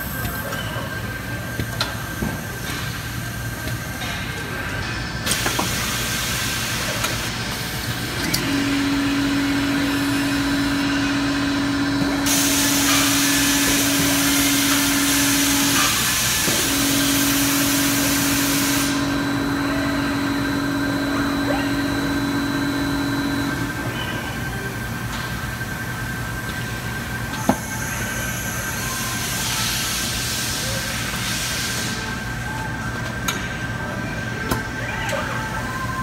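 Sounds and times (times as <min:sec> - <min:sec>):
machinery hum: 0:00.0 - 0:36.0
loud hiss: 0:12.2 - 0:19.2.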